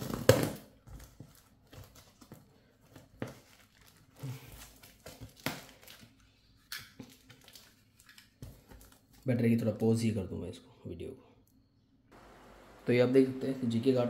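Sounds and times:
tape crinkling: 0.9 - 9.2.

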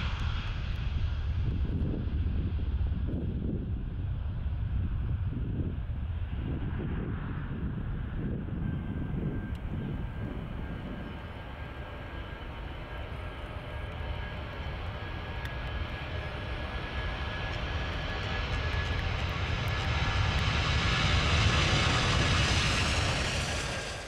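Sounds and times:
jet engines at takeoff: 0.0 - 24.0.

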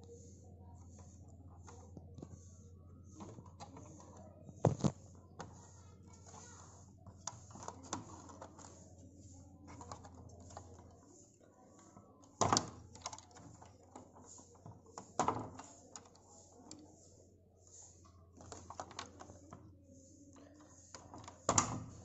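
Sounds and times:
clicks and taps of plastic parts: 7.0 - 8.8, 11.9 - 16.8, 18.0 - 19.7, 20.3 - 22.0.

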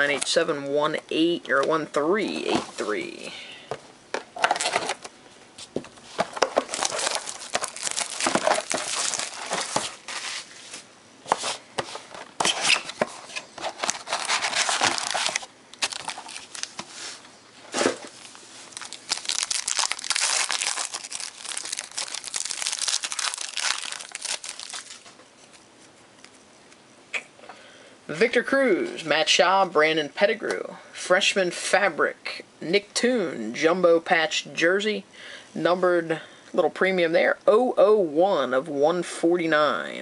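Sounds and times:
foil wrappers crinkling and tearing: 6.2 - 10.2, 13.6 - 17.1, 18.0 - 25.6.

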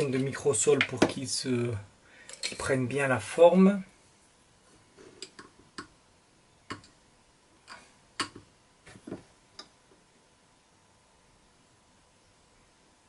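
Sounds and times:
small tools clicking and tapping: 2.3 - 2.7, 7.7 - 8.5.

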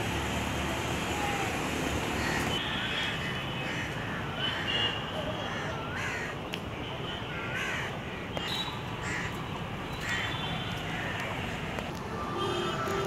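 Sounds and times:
crows cawing: 5.5 - 6.3, 7.3 - 9.4.

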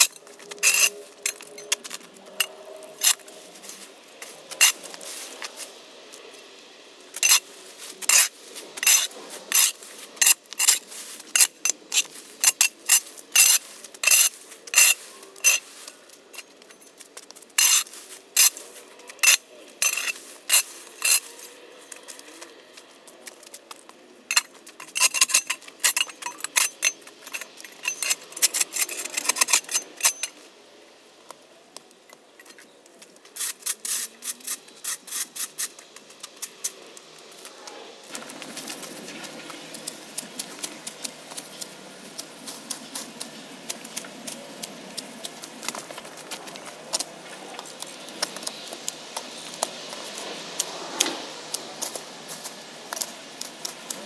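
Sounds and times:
shovel scraping concrete: 0.0 - 5.7, 7.2 - 16.5, 17.6 - 22.5, 24.3 - 30.4.

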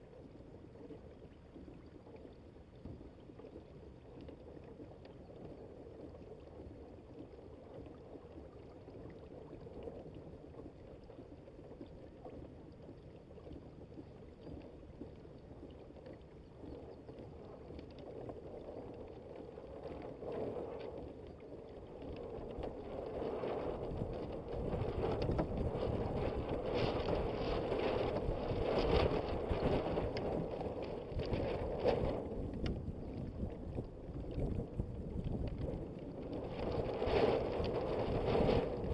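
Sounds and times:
water rushing along a hull: 0.0 - 38.9
wind buffeting the microphone: 17.1 - 38.9.

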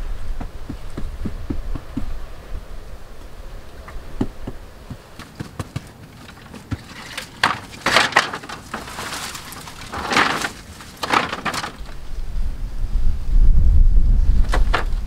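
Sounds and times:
bamboo poles knocking: 0.4 - 2.1, 4.2 - 12.0
bamboo scraping rattles: 3.8 - 12.3, 14.4 - 15.0.

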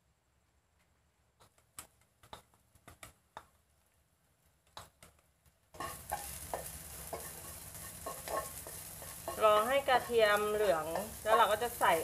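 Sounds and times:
garlic sizzling in hot oil: 4.8 - 12.0.

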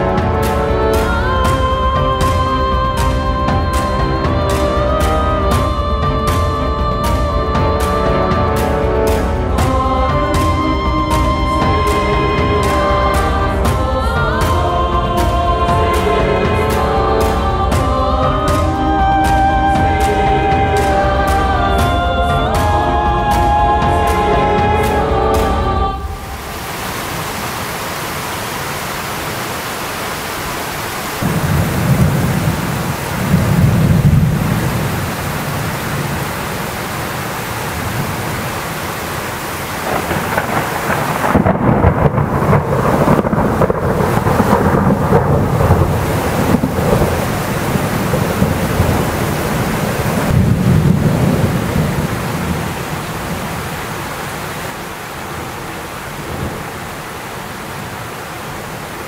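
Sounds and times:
rain falling: 0.0 - 59.0
thunder rolling: 31.2 - 54.0.

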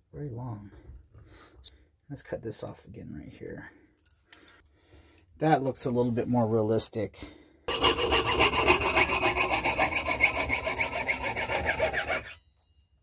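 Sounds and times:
hand saw cutting metal sheet: 7.7 - 12.4.

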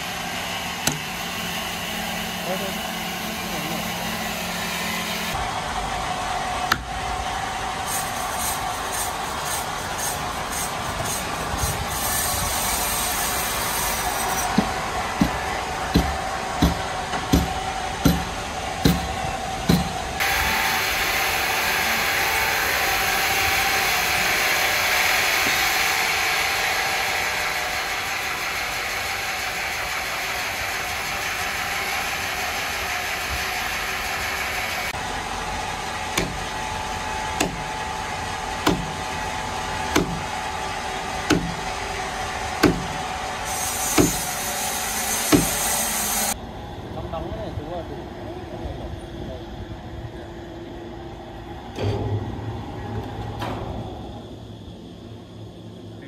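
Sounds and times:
power saw cutting timber: 0.0 - 7.2, 7.8 - 46.4
machine knocking: 14.5 - 20.0, 38.6 - 39.0, 39.9 - 40.3, 41.2 - 41.7, 42.6 - 43.1.

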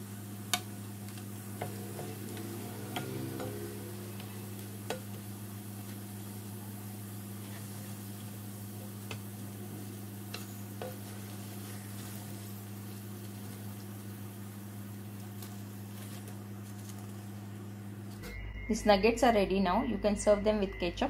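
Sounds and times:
chicken sizzling in hot oil: 0.0 - 18.1
steady low hum: 0.0 - 21.0.

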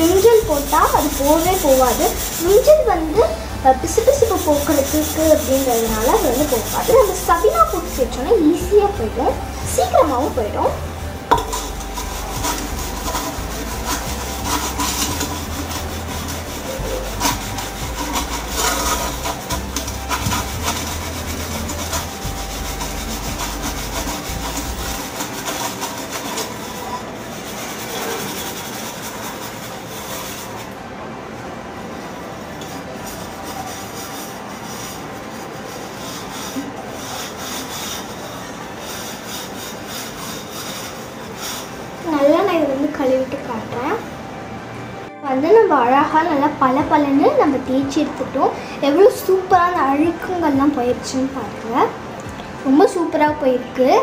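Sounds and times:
low hum: 0.0 - 27.4
scrubbing copper with powder: 0.0 - 30.7, 32.6 - 42.7.

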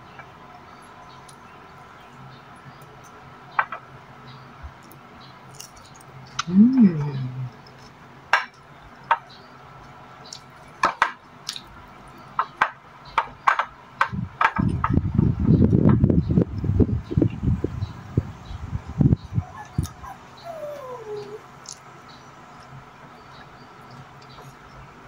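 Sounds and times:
person humming: 6.5 - 7.5.

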